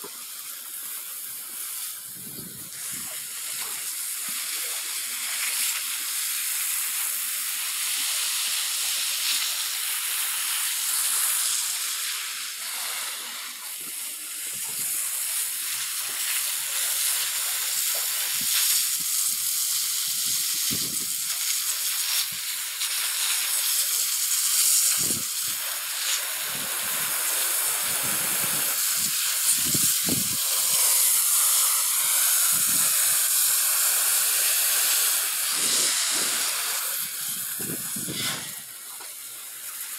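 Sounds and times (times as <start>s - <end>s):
garden hose spraying: 0.0s - 39.9s
water splashing on soil and plants: 14.6s - 39.9s.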